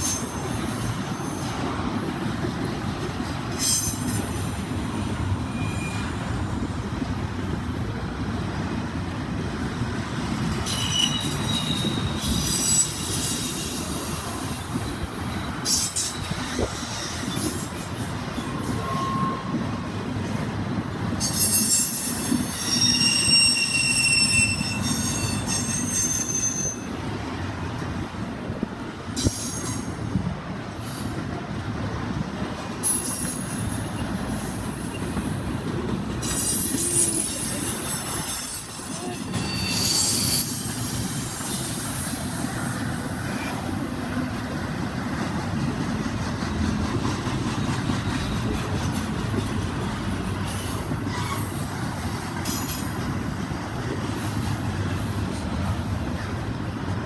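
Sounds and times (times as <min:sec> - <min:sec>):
train wheels rumbling on rails: 0:00.0 - 0:57.0
high-pitched wheel squeal: 0:05.4 - 0:06.3, 0:10.6 - 0:14.0, 0:18.4 - 0:19.7, 0:21.2 - 0:27.0, 0:36.2 - 0:42.1.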